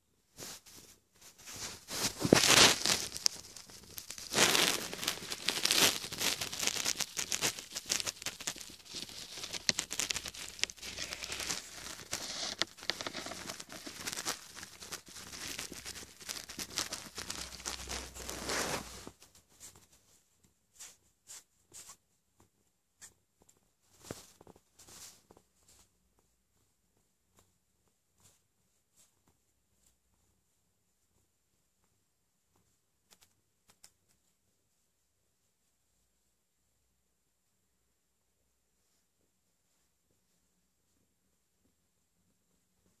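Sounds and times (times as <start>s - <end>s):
fingers rubbing cat fur: 0.3s - 20.0s.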